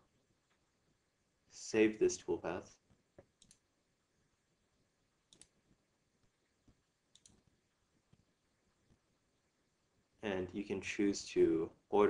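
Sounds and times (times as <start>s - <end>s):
computer mouse clicks: 3.2s - 3.6s, 5.3s - 5.6s, 7.1s - 7.5s.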